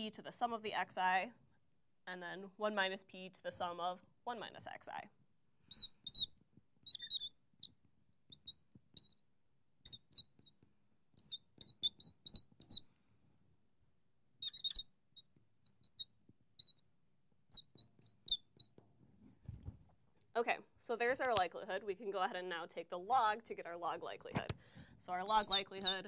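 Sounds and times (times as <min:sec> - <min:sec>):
marker squeaking on glass: 0:05.7 - 0:09.2, 0:09.8 - 0:10.6, 0:11.2 - 0:12.8, 0:14.4 - 0:16.9, 0:17.5 - 0:18.8, 0:25.2 - 0:26.0.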